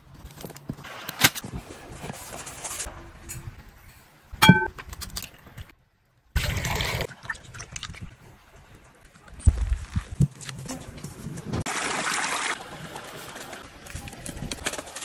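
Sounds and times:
glass bowl clinking: 4.4 - 4.7.

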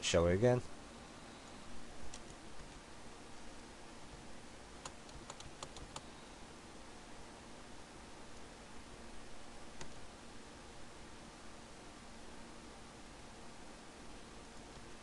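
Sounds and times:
faint steady hiss: 0.0 - 15.0
keyboard keys clicking: 4.8 - 6.0.

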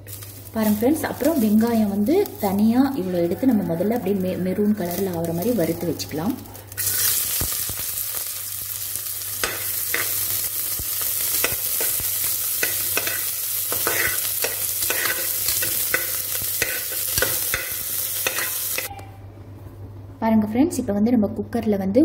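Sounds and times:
onions sizzling in a pot: 0.0 - 19.0
steel spoon scraping a pot: 12.6 - 18.9.

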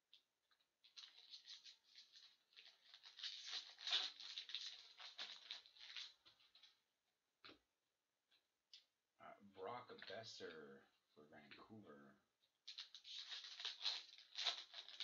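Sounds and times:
foil wrapper tearing and crinkling: 0.9 - 6.2, 12.7 - 15.0.

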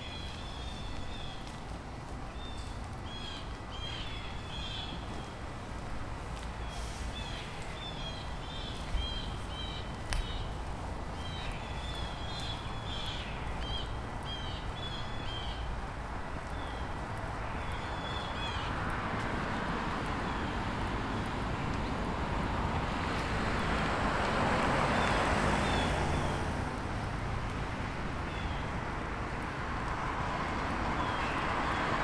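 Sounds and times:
birds chirping: 0.0 - 1.5.

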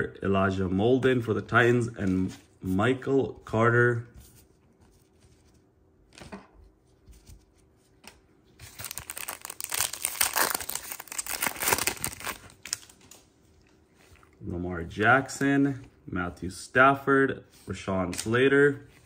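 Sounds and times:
foil pack crinkling: 8.6 - 13.2.

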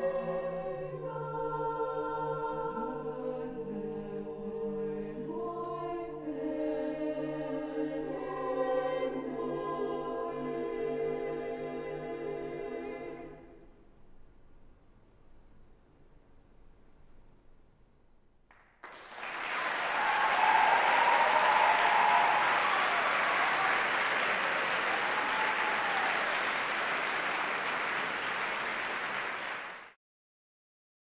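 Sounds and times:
audience applause: 18.8 - 30.0
people whooping: 19.0 - 29.8.

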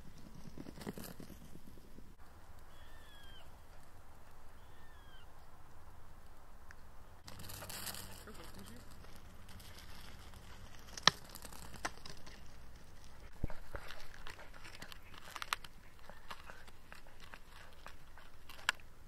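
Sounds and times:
dog gnawing wooden stick: 7.2 - 19.0.

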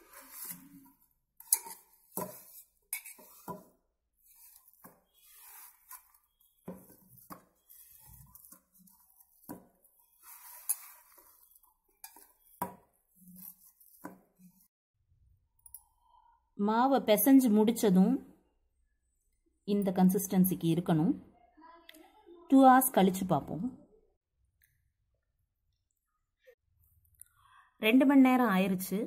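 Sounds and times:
hands rubbing dough: 0.0 - 14.7.

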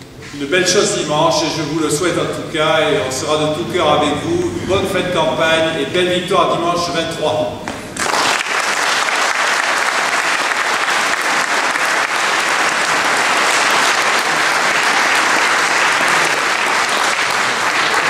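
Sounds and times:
audience applauding: 8.0 - 18.0.

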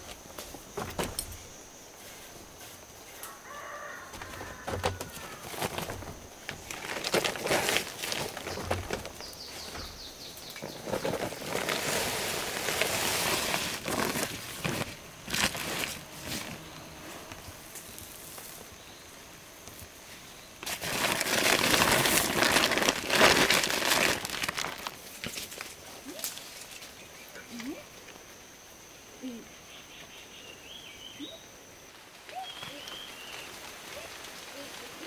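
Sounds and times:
feed sack rustling and crinkling: 4.2 - 18.6, 20.6 - 26.8.

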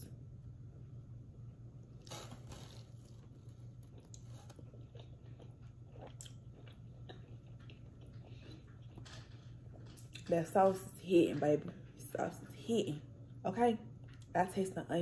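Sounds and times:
low steady hum: 0.0 - 15.0
person biting taco: 2.0 - 9.2
wet chewing and crunching: 2.0 - 10.4.

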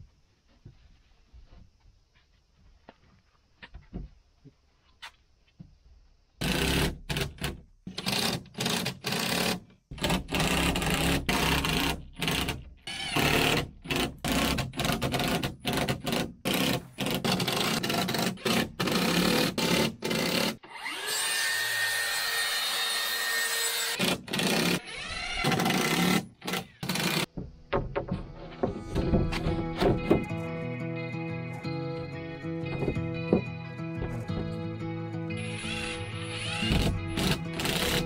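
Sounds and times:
cordless drill driving screws: 6.4 - 27.3, 35.4 - 38.0.

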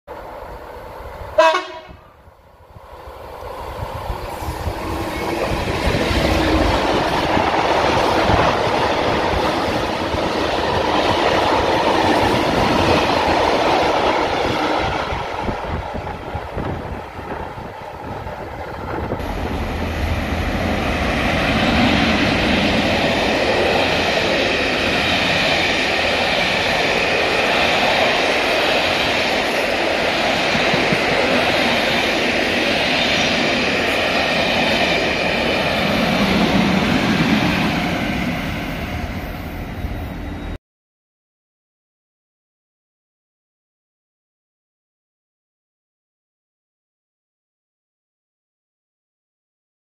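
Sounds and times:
diesel locomotive passing: 0.1 - 40.6
train wheels on rails: 2.5 - 40.6.

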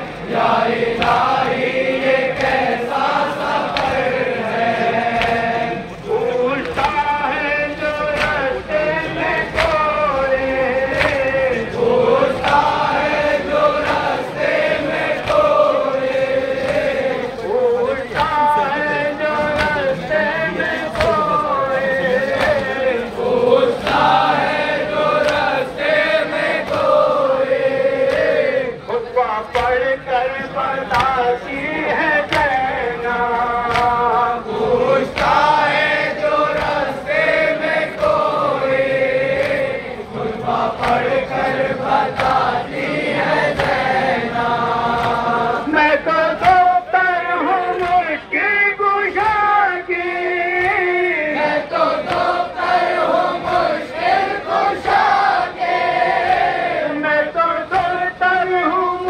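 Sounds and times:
men chanting in chorus: 0.0 - 59.0
chest-beating slaps: 2.3 - 4.2, 5.1 - 5.5, 6.6 - 7.2, 7.9 - 11.5, 18.1 - 18.5, 19.4 - 20.0, 33.6 - 34.3
hands slapping chests: 2.3 - 4.2, 5.1 - 5.6, 6.6 - 7.1, 7.9 - 8.6, 9.2 - 10.0, 10.9 - 11.5, 12.4 - 13.0, 13.8 - 14.2, 14.8 - 15.6, 18.1 - 18.5, 19.3 - 20.0, 20.9 - 21.3, 25.1 - 27.0, 29.5 - 29.8, 30.9 - 31.3, 32.3 - 32.7, 33.6 - 34.3, 34.9 - 39.9, 40.7 - 44.0, 44.6 - 45.4, 51.9 - 55.1.

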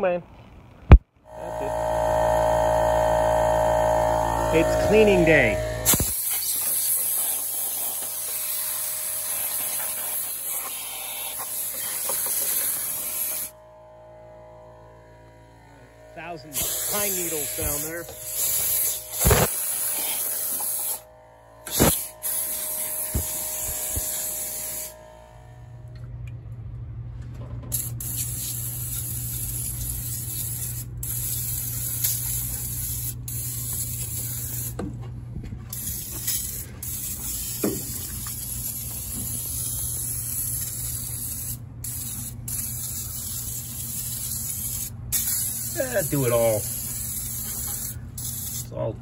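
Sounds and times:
steady low hum: 0.4 - 49.0
aerosol spray hissing: 4.4 - 13.5, 16.2 - 21.0, 21.7 - 25.0, 27.8 - 34.8, 35.7 - 48.7.

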